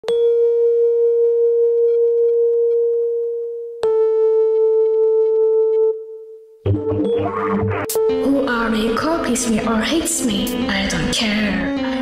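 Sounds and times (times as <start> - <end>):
held wavering tone: 5.7 - 8.3.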